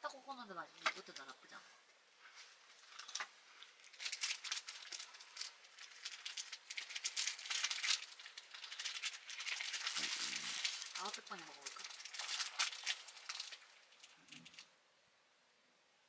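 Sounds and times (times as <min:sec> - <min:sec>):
dry rattling and rustling: 0:02.7 - 0:14.7.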